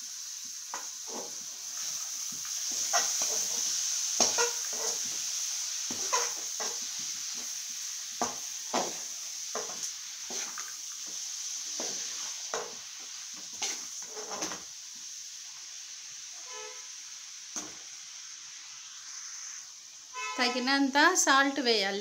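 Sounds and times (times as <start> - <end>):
sizzle of frying: 0.0 - 22.0
metal spoon scraping a pan: 0.7 - 1.9, 2.6 - 5.2, 5.9 - 6.8, 9.6 - 10.7, 13.5 - 14.6.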